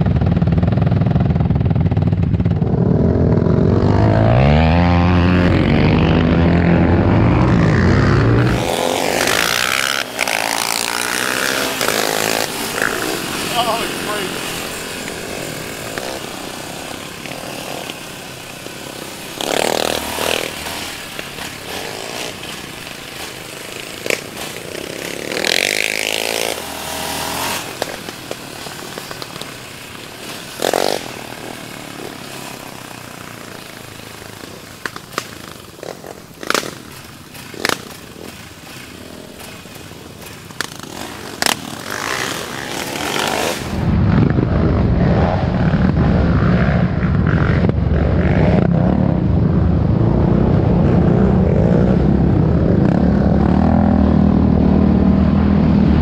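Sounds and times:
quad bike engine running: 0:00.0 - 0:56.0
wind noise: 0:43.5 - 0:56.0.

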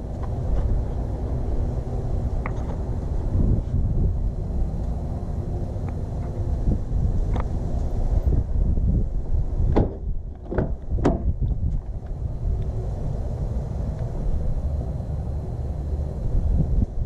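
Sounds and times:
steady low rumble: 0:00.0 - 0:17.0
car door handle and latch clicks: 0:09.7 - 0:11.3.

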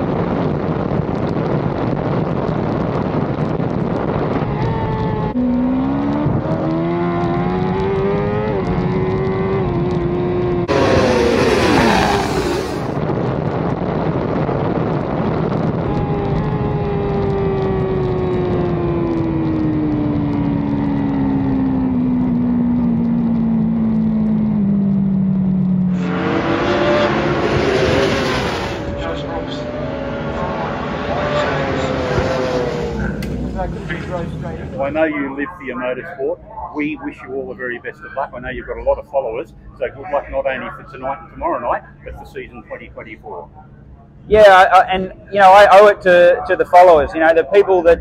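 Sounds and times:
racing motorcycle engine revving: 0:03.0 - 0:13.0, 0:14.7 - 0:37.3
race bikes passing by: 0:25.7 - 0:38.7.

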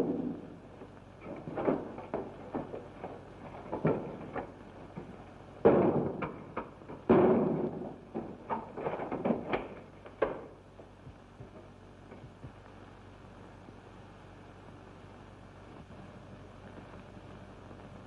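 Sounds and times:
wood crashing and splintering: 0:01.2 - 0:10.4.

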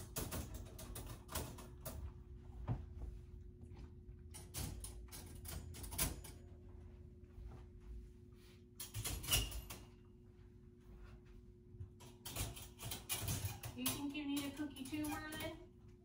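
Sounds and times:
dog crate doors rattling: 0:12.2 - 0:15.6.

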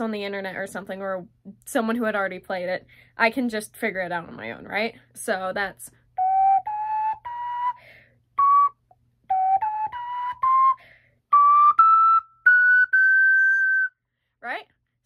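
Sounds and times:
ocarina playing a scale: 0:06.2 - 0:14.0.

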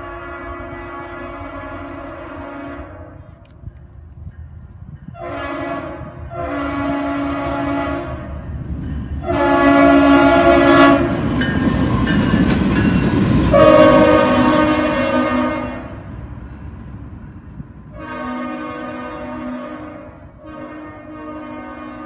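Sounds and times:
locomotive air horn blasts: 0:00.0 - 0:03.2, 0:05.1 - 0:08.4, 0:09.2 - 0:11.2, 0:13.5 - 0:16.1, 0:17.9 - 0:22.0
train rumbling: 0:00.0 - 0:22.0
locomotive engine: 0:07.6 - 0:22.0.

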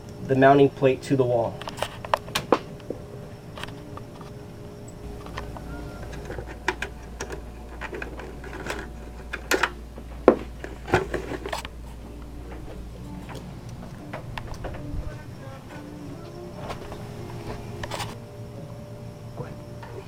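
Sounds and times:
steady low hum: 0:00.0 - 0:20.0
knocks and clicks of tools: 0:05.0 - 0:11.8.

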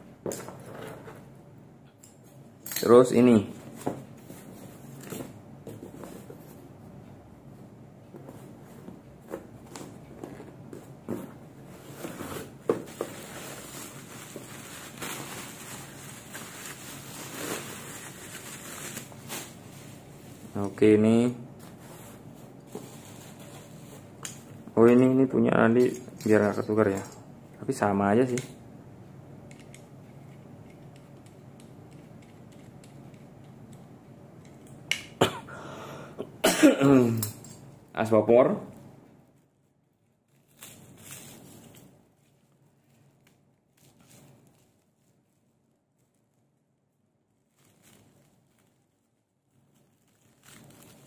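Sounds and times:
low steady hum: 0:00.0 - 0:51.0
bubble wrap crinkling: 0:11.8 - 0:20.6, 0:21.7 - 0:24.1, 0:39.3 - 0:51.0.

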